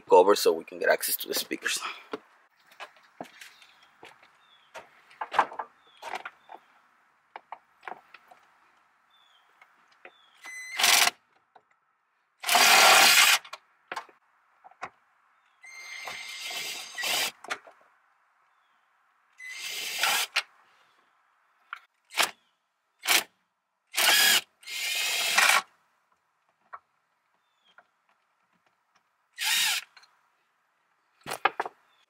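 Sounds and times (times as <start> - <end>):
cordless drill motor whine: 19.4 - 20.3, 24.0 - 25.6, 29.4 - 29.9.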